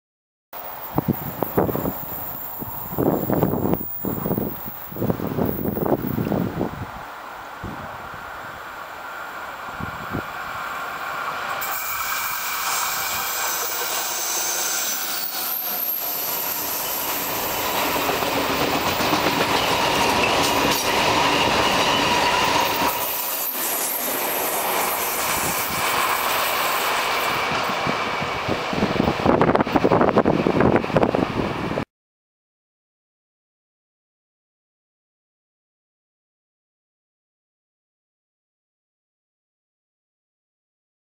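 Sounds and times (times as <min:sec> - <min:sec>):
high wheel squeal: 0:00.6 - 0:06.3, 0:11.4 - 0:28.5
freight train wheels rolling: 0:00.6 - 0:06.8, 0:07.8 - 0:31.8.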